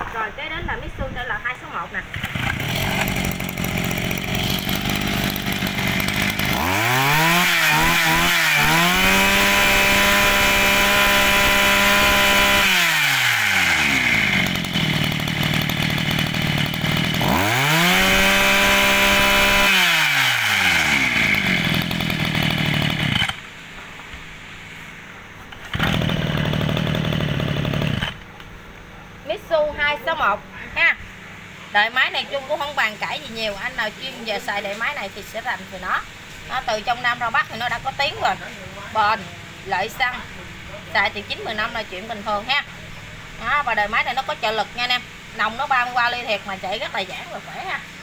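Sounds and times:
brush cutter engine revving: 0:02.1 - 0:23.5, 0:25.5 - 0:28.3.

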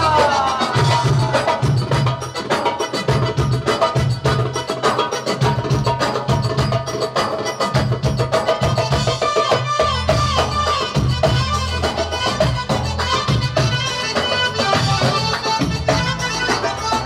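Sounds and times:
fast percussion: 0:00.0 - 0:17.0.

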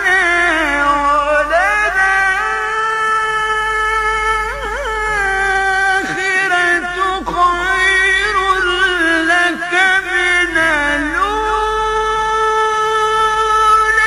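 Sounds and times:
man reciting melodically: 0:00.0 - 0:14.0.

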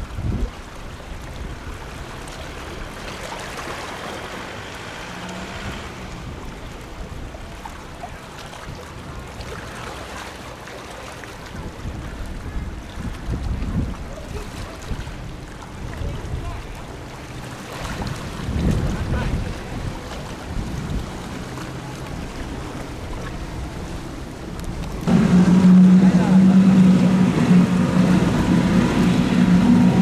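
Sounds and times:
wind rumbling on microphone: 0:00.0 - 0:03.2, 0:11.3 - 0:30.0
distant boat engine drone: 0:00.0 - 0:30.0
rushing wake water: 0:00.0 - 0:30.0.

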